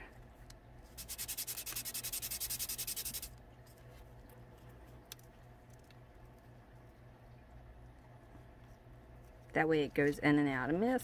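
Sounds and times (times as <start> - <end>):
wood rubbing on sandpaper: 1.0 - 3.3.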